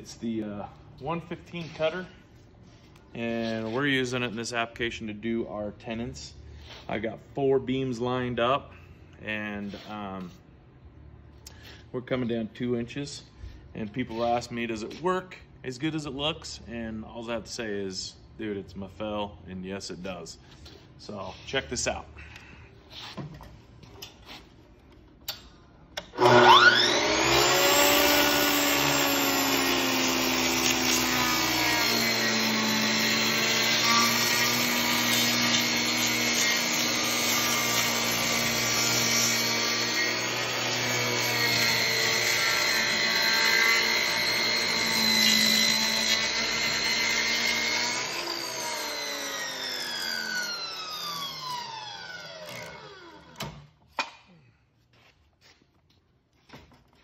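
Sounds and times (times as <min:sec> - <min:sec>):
cutter motor whining: 0:26.1 - 0:53.4
saw cutting timber: 0:26.2 - 0:53.2.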